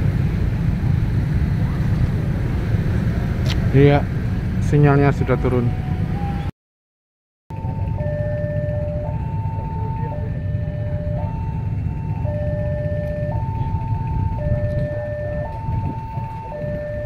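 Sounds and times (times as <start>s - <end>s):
steady low rumble: 0.0s - 6.5s, 7.5s - 17.0s
two-tone crossing alarm: 7.5s - 17.0s.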